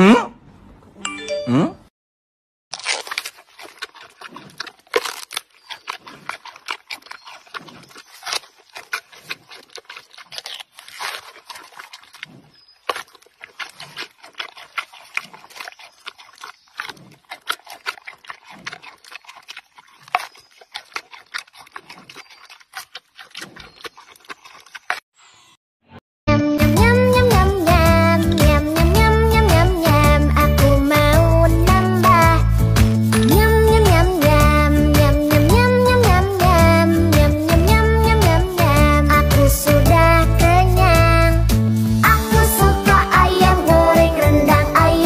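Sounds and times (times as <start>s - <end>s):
panda chewing bamboo: 2.7s - 25.1s, 27.2s - 45.0s.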